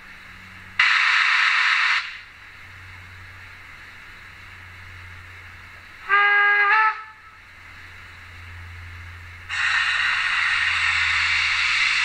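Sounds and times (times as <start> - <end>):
steam hissing: 0.0 - 12.0
steam whistle: 6.0 - 7.4.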